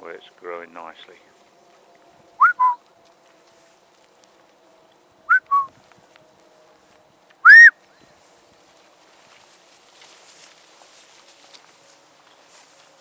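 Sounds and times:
shepherd whistling: 2.4 - 2.8, 5.3 - 5.7, 7.4 - 7.8.

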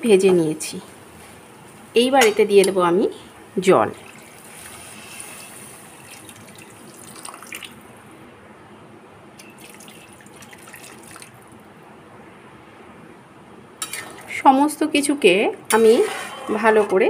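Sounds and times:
water pouring into metal pan: 4.0 - 7.8, 9.4 - 11.4.

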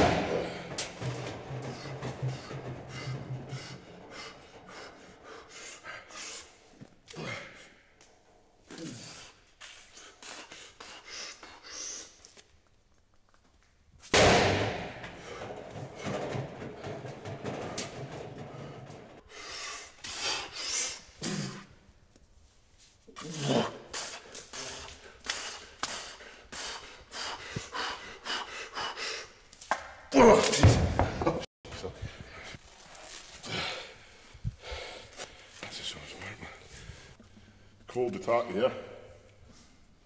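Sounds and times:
person breathing hard and straining: 0.0 - 7.8, 23.2 - 29.4, 33.3 - 35.6.

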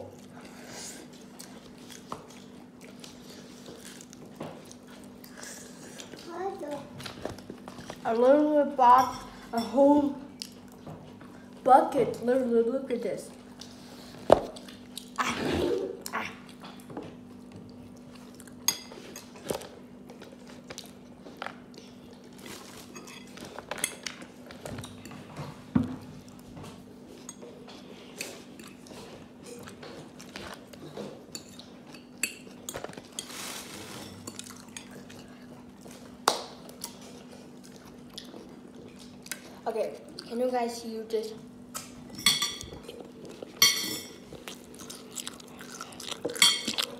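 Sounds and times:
dishes and tableware clinking: 42.1 - 43.0, 43.6 - 44.2.

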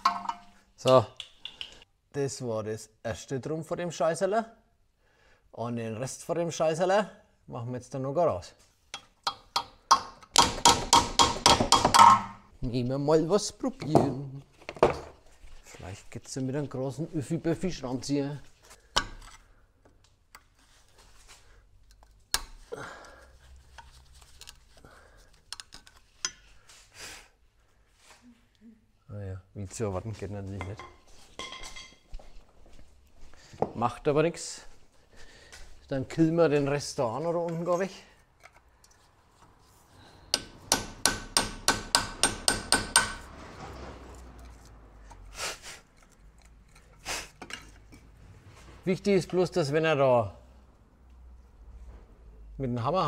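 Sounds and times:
hammer striking metal screwdriver: 0.0 - 0.5, 8.9 - 12.4, 40.3 - 43.3
soft rustle: 15.2 - 17.4.

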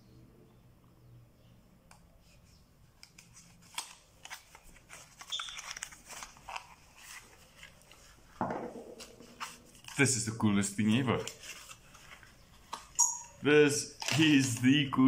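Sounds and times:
packaging rustling and crinkling: 3.0 - 10.1, 10.8 - 13.0, 13.9 - 14.9.

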